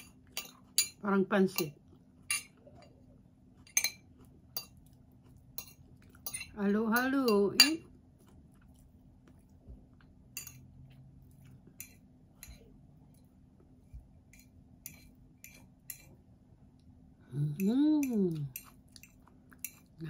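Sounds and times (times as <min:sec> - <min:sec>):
fork clinking against plate: 0:02.3 - 0:02.9, 0:05.6 - 0:06.6.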